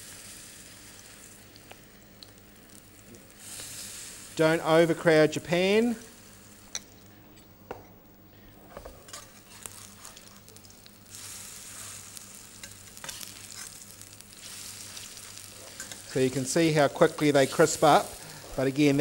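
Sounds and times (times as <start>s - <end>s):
fritters sizzling in oil: 0.0s - 4.7s, 8.8s - 19.0s
metal utensil clicking on pan: 15.8s - 16.0s.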